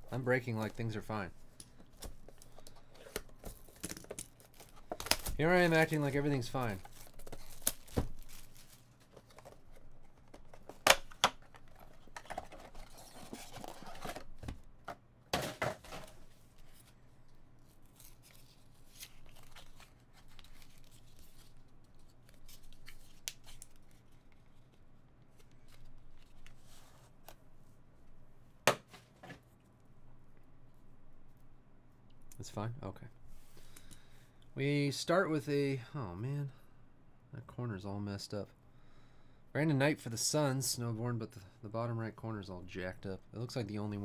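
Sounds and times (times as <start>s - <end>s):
plastic wrap tearing and crinkling: 6.4s - 9.0s.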